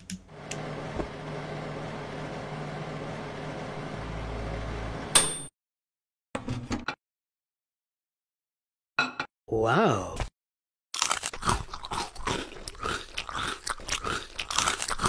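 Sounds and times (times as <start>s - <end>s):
electric oven humming: 0.0s - 5.5s
timer bell ding: 5.2s - 5.5s.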